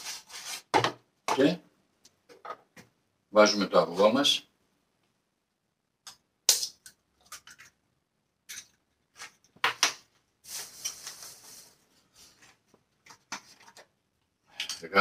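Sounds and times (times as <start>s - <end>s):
rustling: 10.4s - 13.9s.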